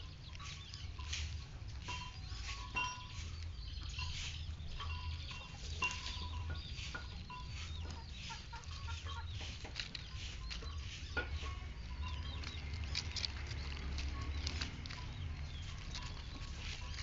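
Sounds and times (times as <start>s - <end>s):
birds chirping: 0.0s - 17.0s
bird nibbling leaves: 8.2s - 17.0s.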